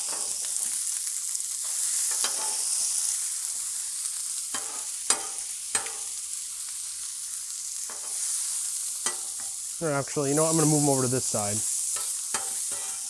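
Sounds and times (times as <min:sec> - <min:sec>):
dumplings sizzling on griddle: 0:00.0 - 0:13.0
metal spatulas scraping griddle: 0:01.6 - 0:02.6, 0:04.5 - 0:06.1, 0:12.0 - 0:13.0.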